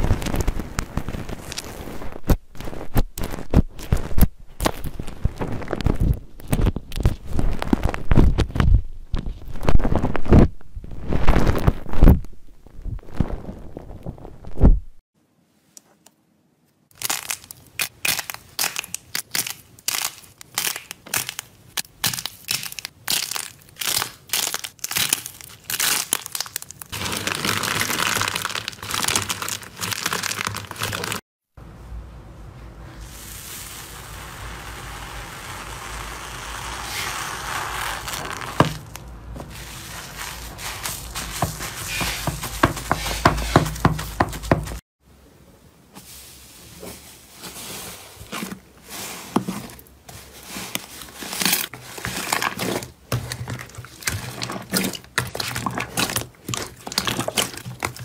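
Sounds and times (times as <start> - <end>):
fizzing crunch of foamy slime: 33.0 - 43.6
wet slime squishing: 35.3 - 44.8, 48.3 - 58.0
clay shell crackling: 38.0 - 44.8.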